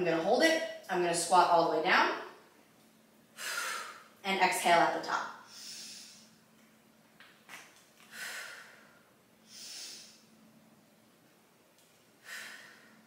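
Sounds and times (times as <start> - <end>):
woman breathing forcefully: 3.3 - 4.2, 5.4 - 6.4, 8.0 - 10.3, 12.2 - 13.0.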